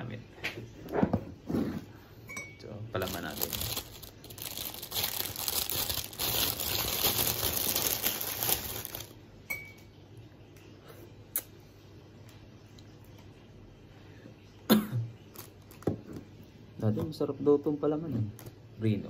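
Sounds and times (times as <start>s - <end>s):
plastic bag crinkling: 2.9s - 9.2s, 15.3s - 16.0s.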